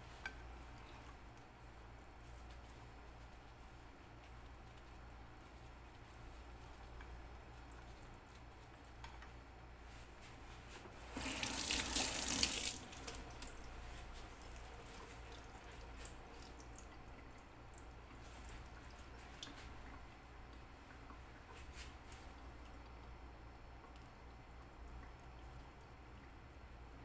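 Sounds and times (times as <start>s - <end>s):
kitchen tap running: 11.1s - 13.7s.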